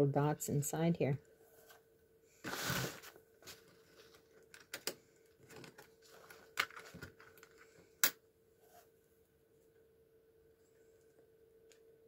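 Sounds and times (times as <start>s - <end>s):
card and pen handling: 2.5s - 7.7s.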